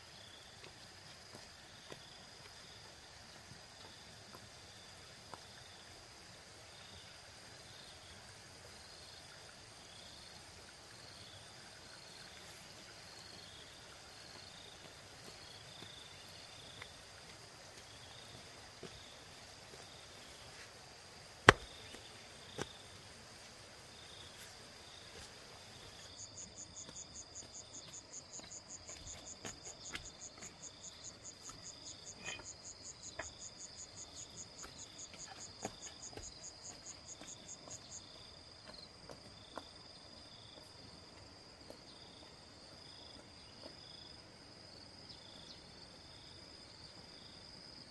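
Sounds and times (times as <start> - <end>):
crickets and insects calling: 0.0 - 47.9
stepping stones knocking on dirt: 21.4 - 22.8, 26.8 - 32.5, 34.5 - 37.8
fast pulsing insect call: 23.9 - 38.8.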